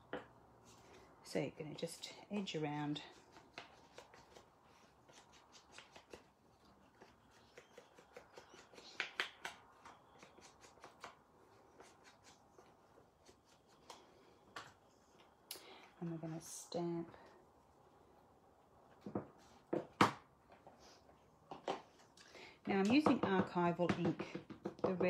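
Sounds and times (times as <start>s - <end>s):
taps scratches and rustles: 2.9s - 15.4s.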